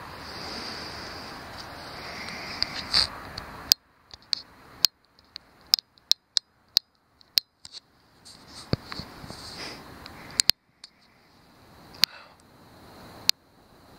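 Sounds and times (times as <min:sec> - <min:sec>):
background hiss: 0:00.0 - 0:13.9
sharp clicks: 0:01.6 - 0:07.8, 0:10.0 - 0:11.1.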